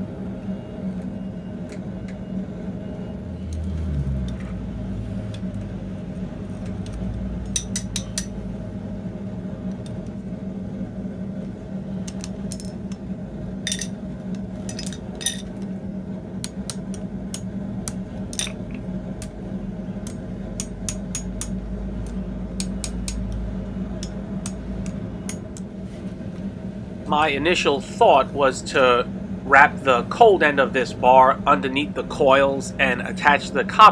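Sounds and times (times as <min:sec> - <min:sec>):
steady low hum: 0:00.0 - 0:33.9
metal tongs clinking on iron: 0:07.5 - 0:08.4, 0:13.7 - 0:13.9, 0:14.7 - 0:15.5, 0:18.3 - 0:18.7.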